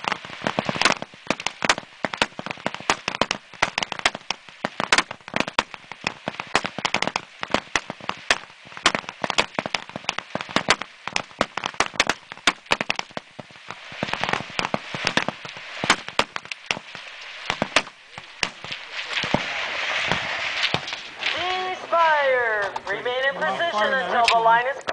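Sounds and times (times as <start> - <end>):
rifle shots: 13.9 - 21.4.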